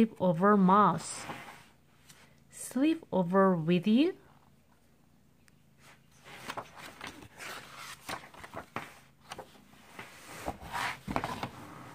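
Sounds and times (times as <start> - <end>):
paper rustling: 5.8 - 11.9.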